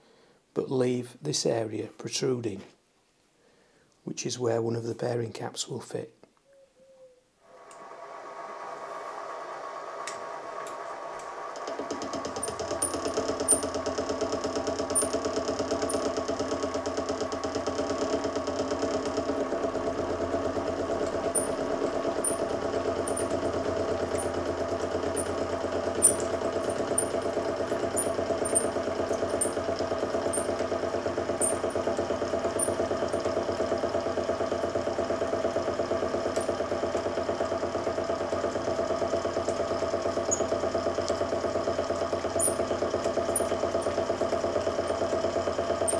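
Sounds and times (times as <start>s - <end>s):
metal chips ticking: 12.4s - 13.7s, 14.9s - 16.1s, 20.9s - 33.4s, 42.4s - 45.1s
milling machine humming and whining: 18.9s - 38.6s.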